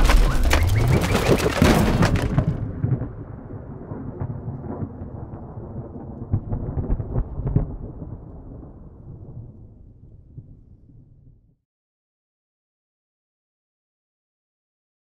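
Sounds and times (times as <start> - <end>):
thunder cracks: 0.0 - 10.7
thunder rumble: 0.0 - 11.4.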